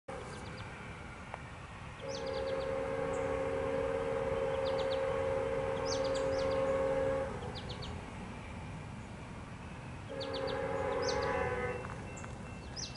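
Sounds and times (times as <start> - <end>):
birds chirping: 0.1 - 12.9
locomotive air horn blast: 2.0 - 7.7, 10.1 - 12.1.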